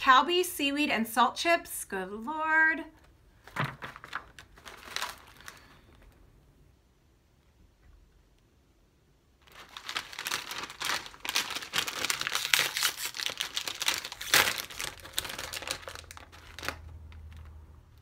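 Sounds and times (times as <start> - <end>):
chip bag rustling and crackling: 3.4 - 6.2, 9.4 - 18.0.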